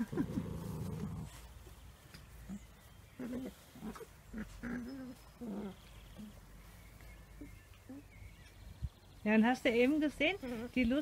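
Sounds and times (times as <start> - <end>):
puppies whimpering and grunting: 0.0 - 1.7, 2.4 - 8.5.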